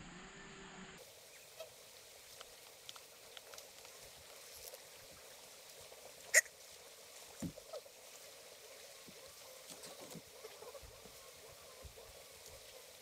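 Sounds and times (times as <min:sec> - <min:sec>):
faint outdoor background: 0:00.0 - 0:13.0.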